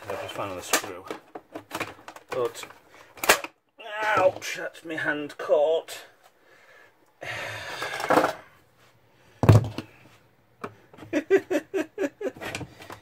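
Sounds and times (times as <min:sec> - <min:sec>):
plastic scraping and creaking: 0:00.0 - 0:03.5.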